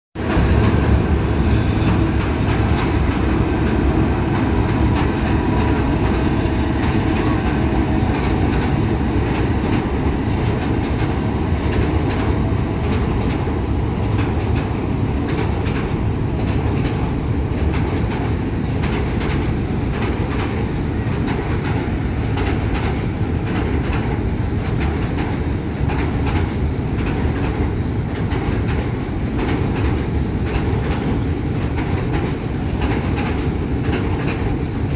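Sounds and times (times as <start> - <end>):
train wheels rolling on rails: 0.2 - 34.9
wheels clacking over rail joints: 0.2 - 34.9.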